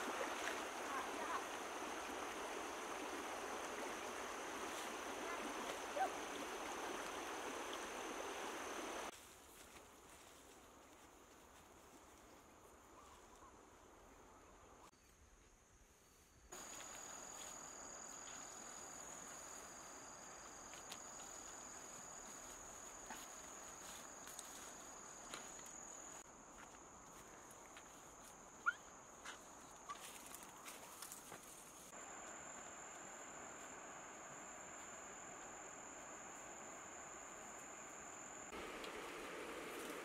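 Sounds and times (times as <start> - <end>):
soft ticks and rustles: 29.2 - 31.9.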